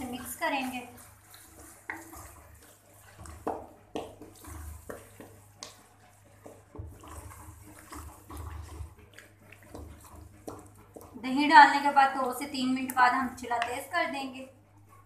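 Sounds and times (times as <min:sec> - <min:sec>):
spatula scraping and knocking pan: 0:00.0 - 0:14.3
squelchy stirring of sauce: 0:00.0 - 0:15.0.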